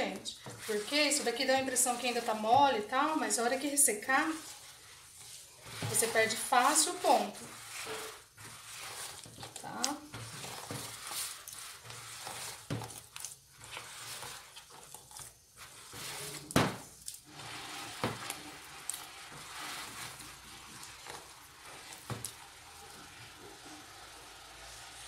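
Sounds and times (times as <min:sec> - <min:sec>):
hand squelching wet dough: 0:00.0 - 0:25.0.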